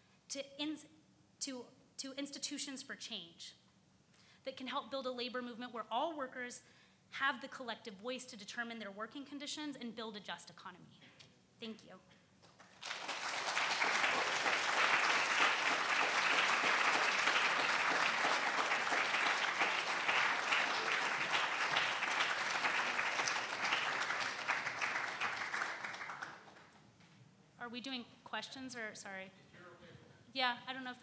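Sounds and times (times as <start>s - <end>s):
audience clapping: 12.4s - 26.8s.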